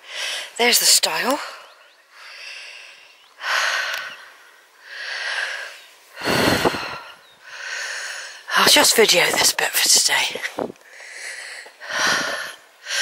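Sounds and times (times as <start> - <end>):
person breathing hard: 0.0 - 0.6, 2.1 - 8.5, 10.8 - 13.0.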